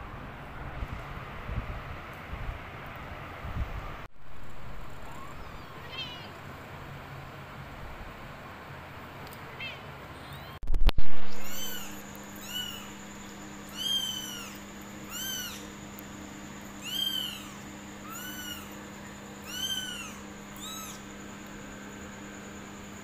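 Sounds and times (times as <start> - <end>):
kittens meowing: 5.0 - 6.4, 11.3 - 13.0, 13.7 - 15.7, 16.8 - 18.8, 19.4 - 21.1
steady low hum: 9.9 - 23.0.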